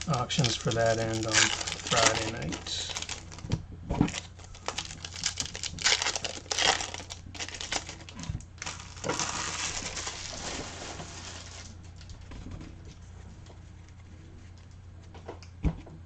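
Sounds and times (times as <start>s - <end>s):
wrapper crinkling and rustling: 0.0s - 12.2s.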